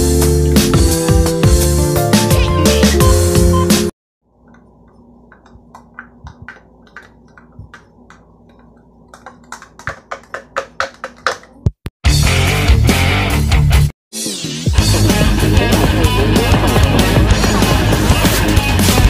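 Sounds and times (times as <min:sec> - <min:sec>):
light taps and clicks: 0:04.4 - 0:11.5
loud background music: 0:12.1 - 0:19.0.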